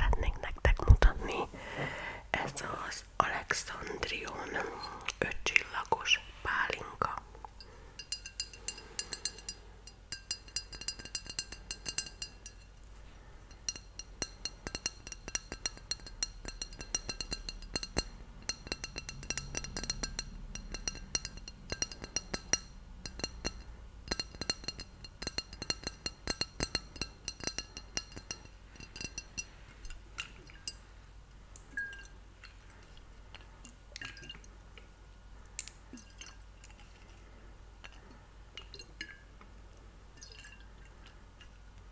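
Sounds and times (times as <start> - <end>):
fingers tapping on glass bottle: 8.0 - 12.7, 13.5 - 30.8, 31.6 - 32.1.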